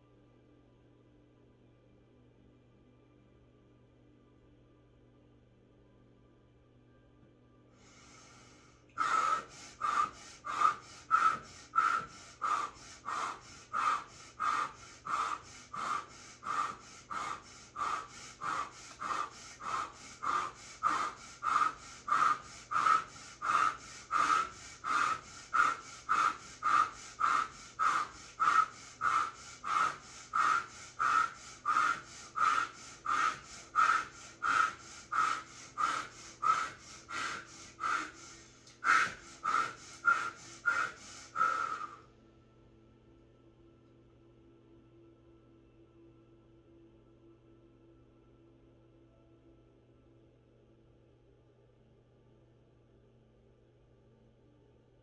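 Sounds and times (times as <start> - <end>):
woman breathing rapidly: 7.7 - 42.1.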